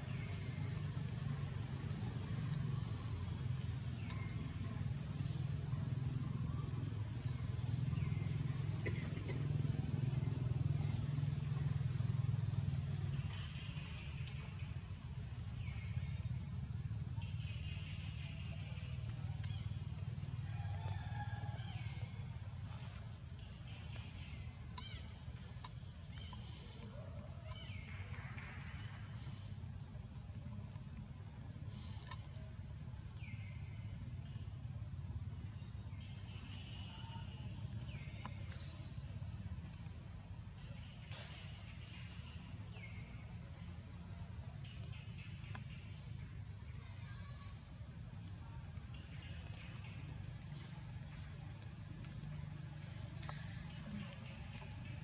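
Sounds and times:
low engine rumble: 0.0s - 44.4s, 47.5s - 55.0s
faint high chirps: 50.5s - 52.2s.

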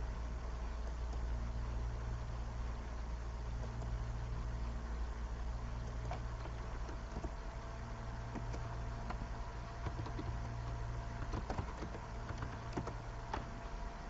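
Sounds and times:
low electrical hum: 0.0s - 14.0s
computer keyboard clicks: 9.8s - 10.6s, 11.2s - 13.5s.

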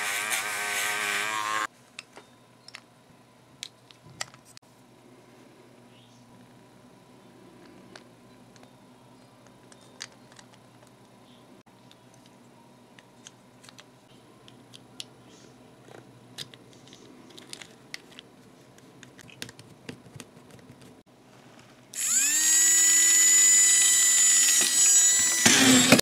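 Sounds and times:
small electric motor whining: 0.0s - 1.7s, 22.0s - 26.0s
plastic parts clicking: 9.5s - 11.1s, 13.0s - 13.9s, 15.8s - 18.3s.

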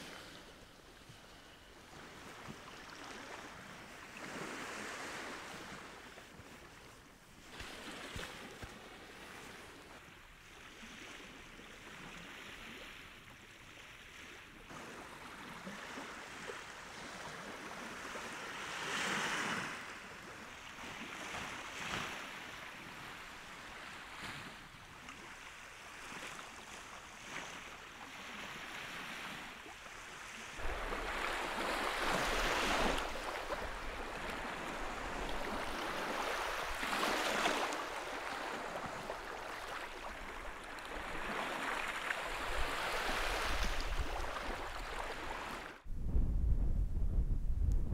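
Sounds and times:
waves washing onto shore: 0.0s - 45.9s
wind buffeting microphone: 45.8s - 47.9s.

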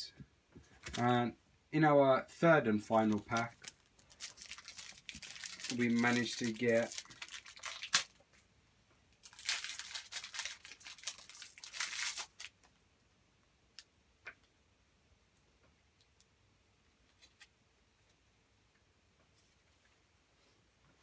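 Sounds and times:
card pack wrapper tearing: 3.0s - 8.2s, 9.2s - 12.6s.

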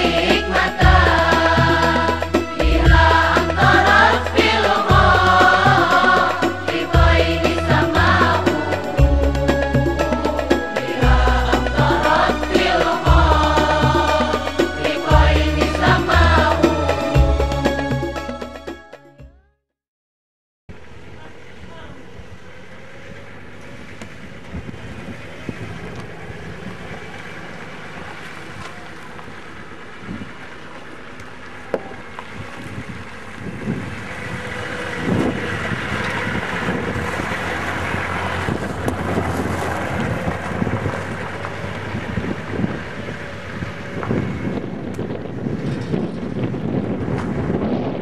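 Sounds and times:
suv engine driving past: 0.0s - 18.3s, 20.7s - 47.7s
wind buffeting microphone: 23.4s - 30.6s, 31.8s - 48.0s.

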